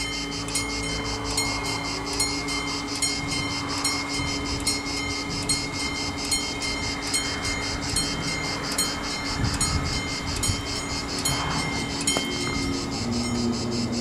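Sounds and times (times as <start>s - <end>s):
level crossing bell ringing: 0.0s - 13.6s
low rough rumble: 0.0s - 14.0s.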